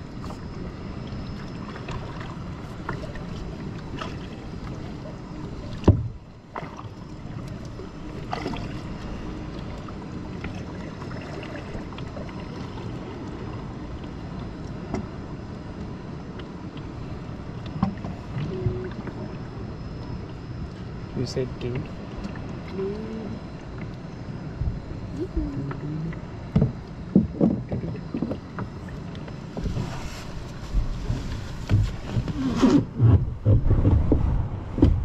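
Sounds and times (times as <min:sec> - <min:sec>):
paddle strokes splashing: 0:01.3 - 0:12.8.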